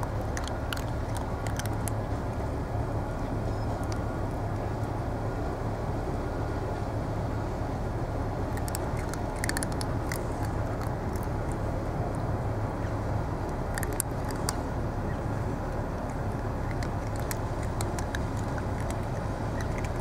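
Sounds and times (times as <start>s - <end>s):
crisp little clicks: 0.0s - 2.2s, 3.6s - 4.7s, 8.5s - 12.3s, 13.4s - 14.7s, 16.0s - 20.0s
low engine rumble: 0.0s - 20.0s.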